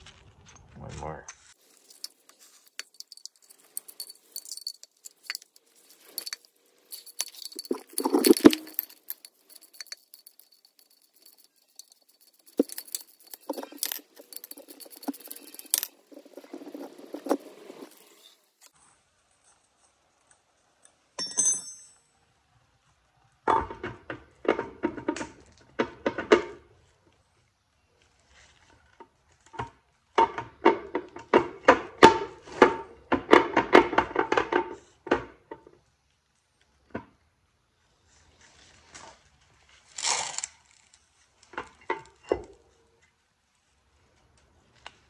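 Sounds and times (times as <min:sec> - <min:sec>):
metal tools clinking and scraping: 0:01.6 - 0:18.5, 0:21.2 - 0:22.1.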